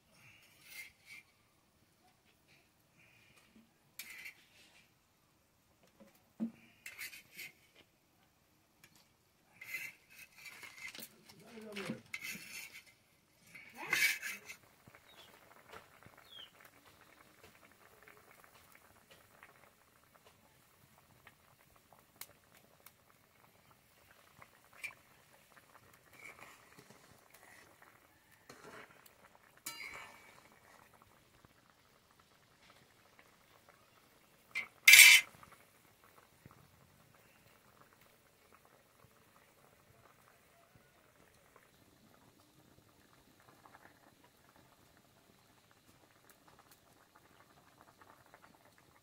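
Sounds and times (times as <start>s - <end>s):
curry bubbling and fizzing: 0.0s - 49.0s.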